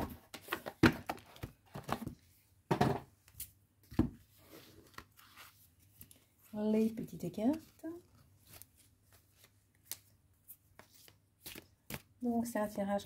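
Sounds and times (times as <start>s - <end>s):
cards sliding and rustling: 4.3s - 6.5s, 7.5s - 12.1s.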